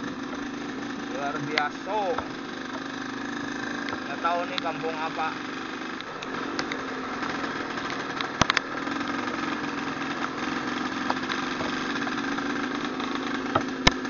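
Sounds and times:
motorcycle engine running: 0.0 - 14.0
sharp clicks: 7.8 - 8.7.

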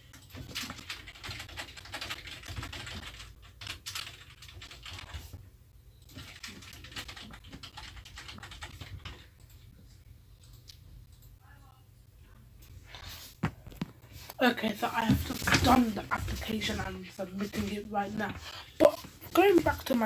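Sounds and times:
rapid keyboard typing: 0.0 - 5.4, 6.0 - 9.7, 14.7 - 20.0.

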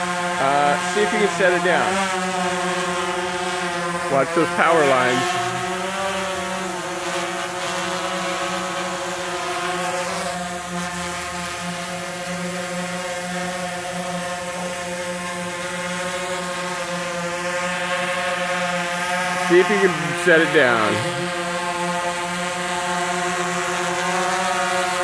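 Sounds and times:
drone propellers buzzing: 0.2 - 9.2.

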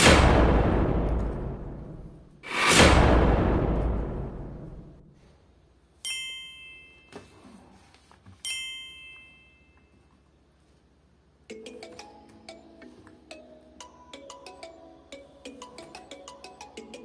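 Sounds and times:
bell-like ding: 6.1 - 7.3, 8.5 - 10.0
background music: 11.5 - 17.0.

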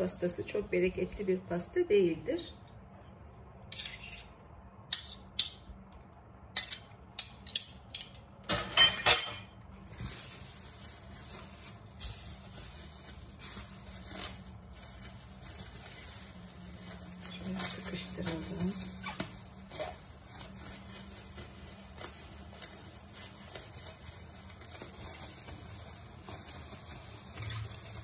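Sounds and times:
metal spoon scraping and tapping: 3.0 - 4.3, 4.9 - 5.6, 6.6 - 9.4.

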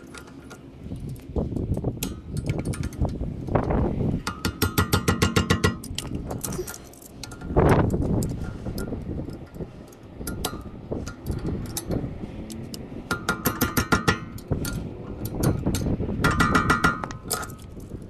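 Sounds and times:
hand tools clinking on metal: 4.4 - 12.7.

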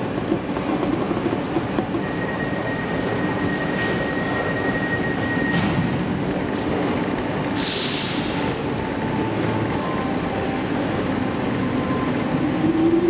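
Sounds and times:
elevator car rumbling: 0.0 - 13.0.

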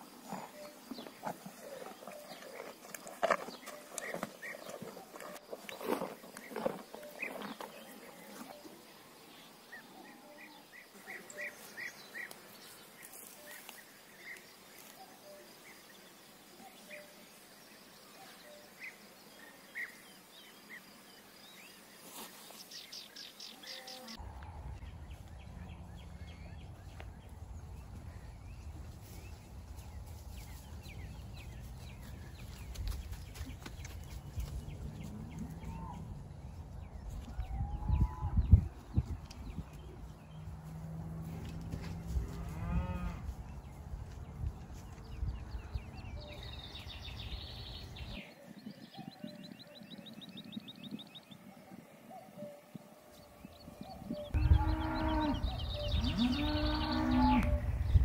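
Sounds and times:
small birds chirping: 0.0 - 58.0
wind rumble on microphone: 24.2 - 52.0, 52.7 - 58.0.

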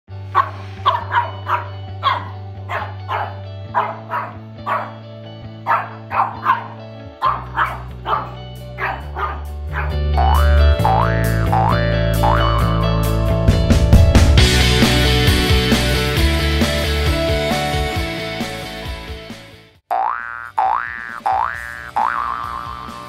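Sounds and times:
music with held bass notes: 0.1 - 19.8, 20.6 - 23.0
puppy barking: 0.3 - 5.0, 5.6 - 10.4.

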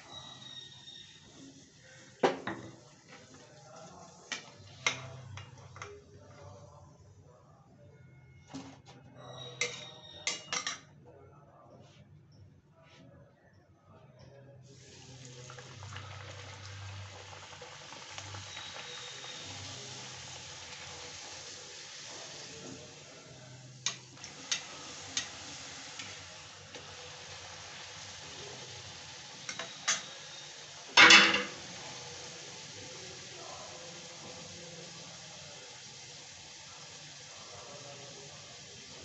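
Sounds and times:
dough frying in hot oil: 0.0 - 6.7, 14.7 - 39.0.

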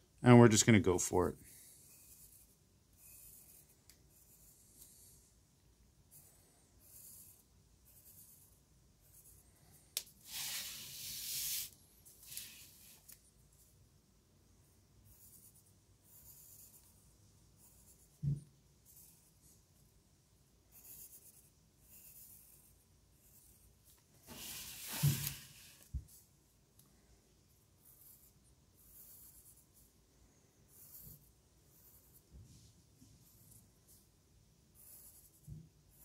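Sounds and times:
pencil scratching on paper: 1.5 - 5.2, 6.0 - 13.2, 14.6 - 18.2, 18.8 - 19.9, 20.7 - 25.9, 27.5 - 30.0, 30.6 - 36.0.

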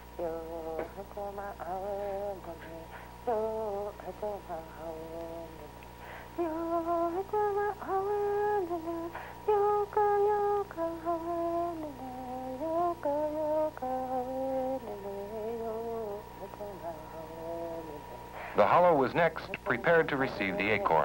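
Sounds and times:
woman humming: 0.0 - 18.6
steady electrical hum: 0.0 - 21.0.

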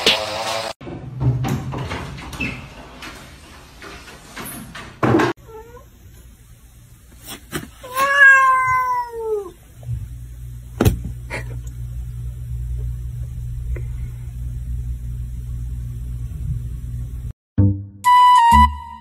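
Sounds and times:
cat meowing: 7.8 - 9.6.

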